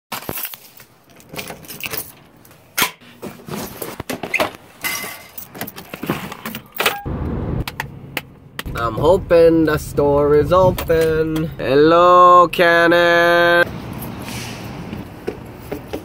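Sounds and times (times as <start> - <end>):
car road noise: 6.4 - 16.0.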